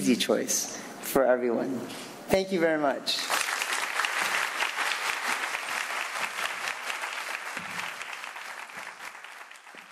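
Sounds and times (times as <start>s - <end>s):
audience applauding: 3.3s - 9.9s.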